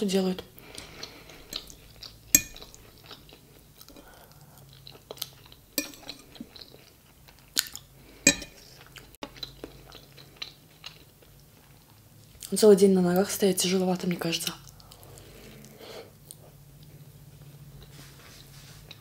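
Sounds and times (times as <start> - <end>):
chewing food: 0.4 - 12.6, 14.5 - 18.0
metal fork clinking on plate: 1.5 - 2.8, 5.8 - 6.2, 8.3 - 8.6.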